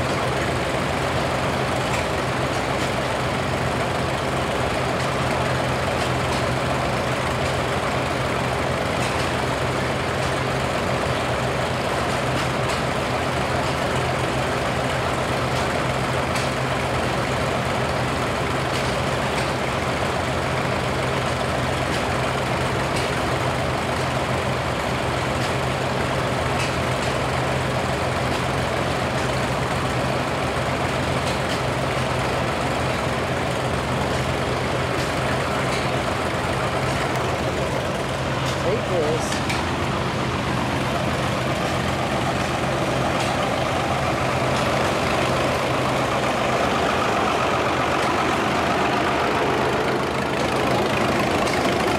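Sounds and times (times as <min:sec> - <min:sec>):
tractor engines idling: 0:00.0 - 0:51.9.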